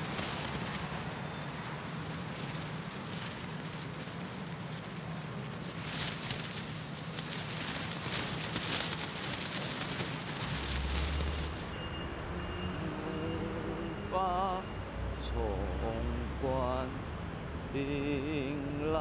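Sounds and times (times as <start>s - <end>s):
rain hissing on street: 0.0s - 12.2s
traffic passing: 0.0s - 19.0s.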